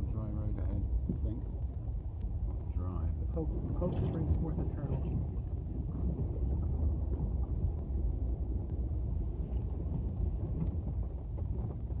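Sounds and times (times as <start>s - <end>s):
faint ticks: 2.1s - 2.7s.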